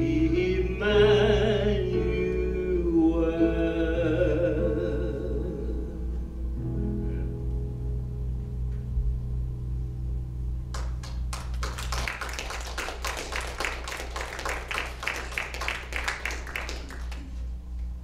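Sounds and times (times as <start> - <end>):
congregation applauding: 10.7 - 17.5.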